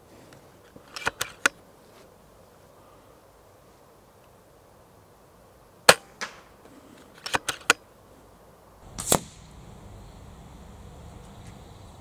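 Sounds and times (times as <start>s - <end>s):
air rifle clicks: 0.8s - 1.6s, 7.0s - 7.8s
air rifle shot crack: 8.8s - 11.7s.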